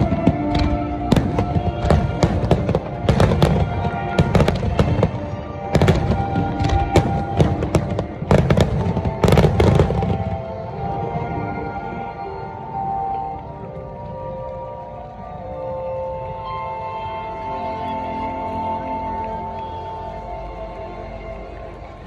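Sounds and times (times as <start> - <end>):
crackling firework stars: 0.0 - 11.1
background music: 0.0 - 22.0.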